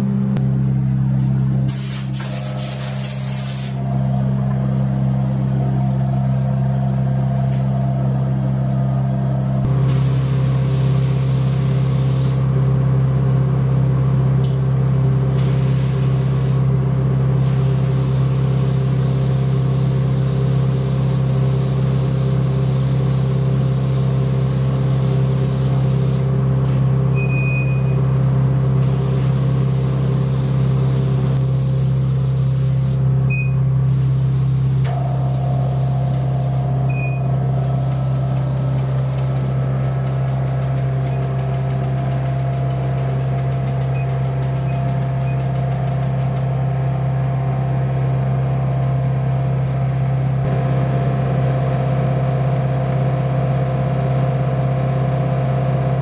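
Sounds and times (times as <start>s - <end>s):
low machine hum: 0.0s - 56.0s
spray gun hissing: 1.7s - 3.8s, 9.7s - 12.5s, 15.4s - 16.7s, 17.4s - 26.3s, 28.8s - 33.0s, 33.8s - 36.9s, 37.6s - 46.5s.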